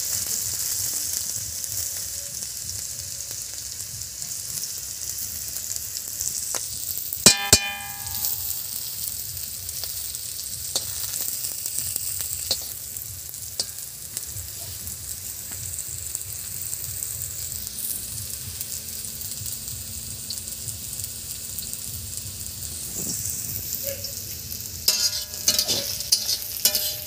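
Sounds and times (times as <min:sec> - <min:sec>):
vegetables sizzling in oil: 0:00.0 - 0:27.0
metal spatula knocking on pan: 0:07.3 - 0:08.6, 0:24.9 - 0:27.0.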